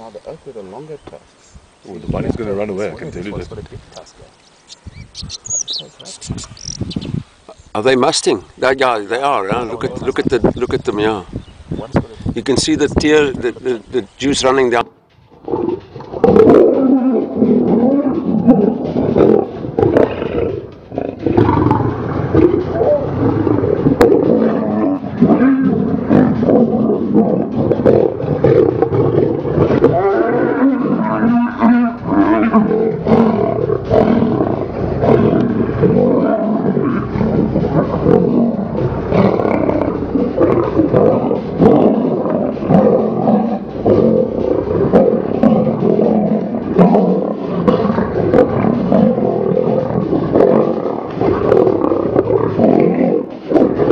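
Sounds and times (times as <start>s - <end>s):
lions roaring: 14.8s - 53.9s.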